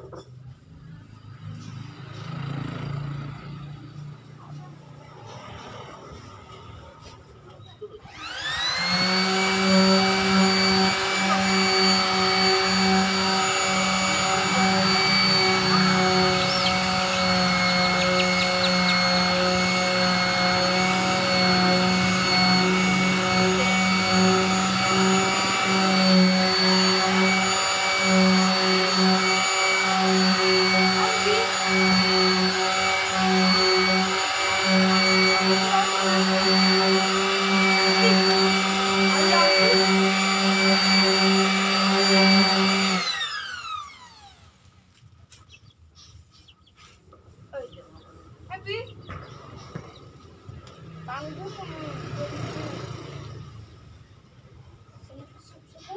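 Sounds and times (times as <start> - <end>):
electric sander whining: 8.0 - 45.5.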